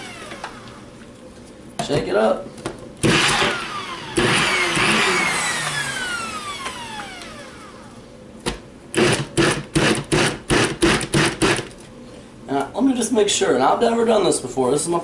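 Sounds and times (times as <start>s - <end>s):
blender motor whine: 0.0s - 0.8s, 3.0s - 8.0s, 9.0s - 11.6s.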